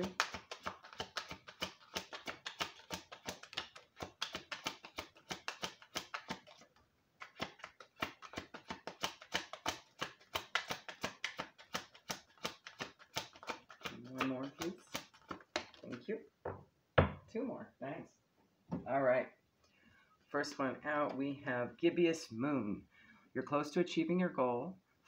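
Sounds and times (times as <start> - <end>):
cards being shuffled: 0.0 - 16.1.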